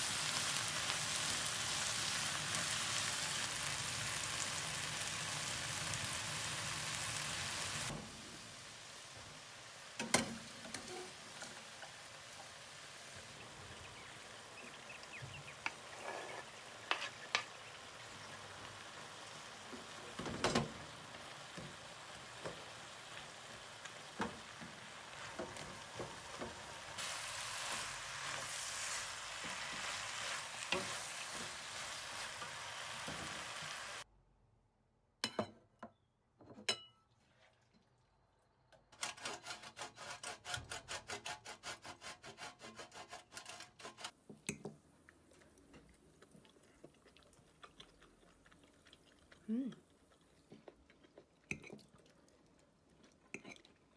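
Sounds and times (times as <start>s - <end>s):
vegetables sizzling in frying pan: 0.0s - 34.0s.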